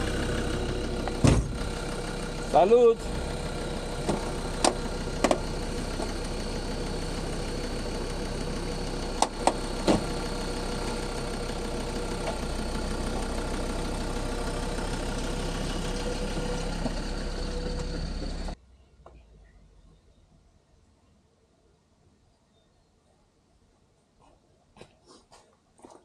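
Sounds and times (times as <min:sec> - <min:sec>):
car engine idling: 0:00.0 - 0:18.6.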